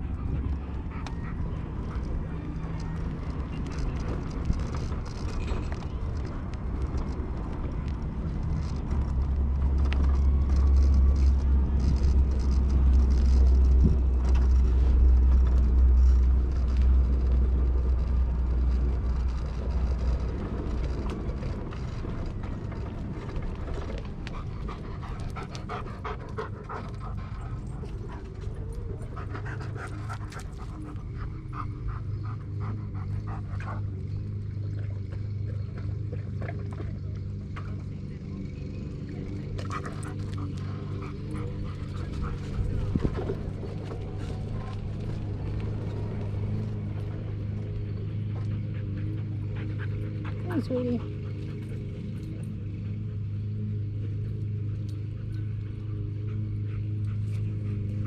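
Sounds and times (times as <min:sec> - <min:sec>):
heavy low rumble: 0:00.0 - 0:51.8
dog panting: 0:23.8 - 0:34.3, 0:39.4 - 0:58.0.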